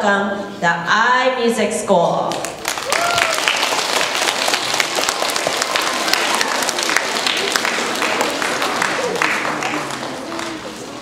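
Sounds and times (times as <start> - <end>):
children applauding: 2.6 - 11.0.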